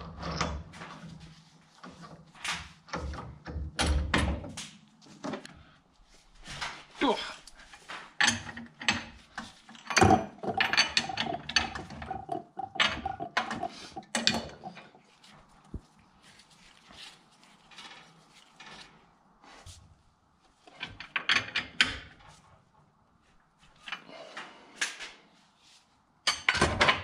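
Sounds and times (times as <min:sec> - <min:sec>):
metal tools clanking: 0:09.8 - 0:15.0.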